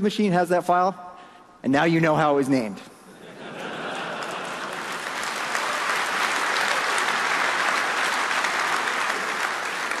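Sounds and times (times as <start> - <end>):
large audience applauding: 3.6 - 10.0.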